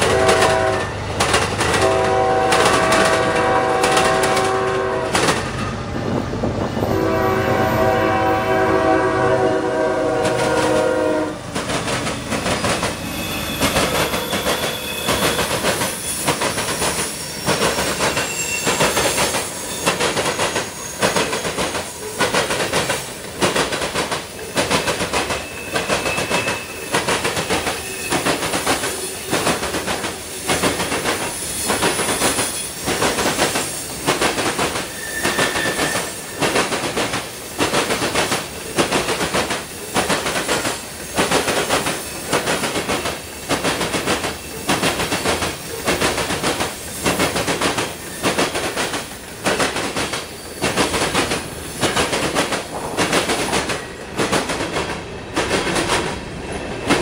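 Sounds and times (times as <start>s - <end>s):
train wheels clacking over track: 0.0s - 57.0s
faint thin squeal: 12.7s - 21.3s, 25.3s - 28.4s, 34.9s - 36.4s.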